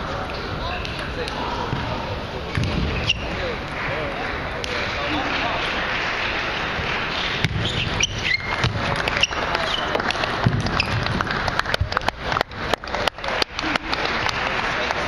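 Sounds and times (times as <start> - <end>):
murmur of large hall: 0.0 - 15.0
shoes squeaking on floor: 2.8 - 3.4, 7.4 - 11.1.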